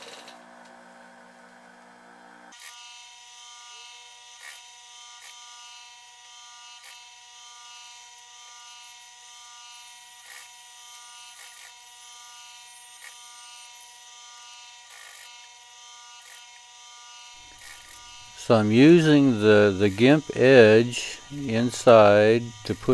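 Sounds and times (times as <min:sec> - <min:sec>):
sewing machine motor humming: 0:17.4 - 0:22.9.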